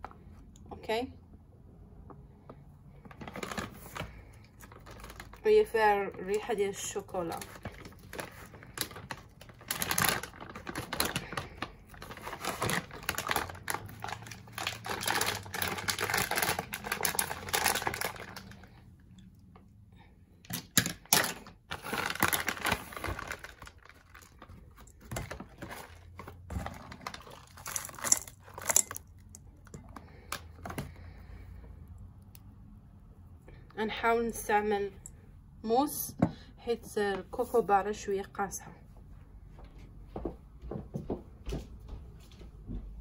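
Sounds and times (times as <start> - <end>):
cocoa butter crackling and scratching: 7.4 - 18.8.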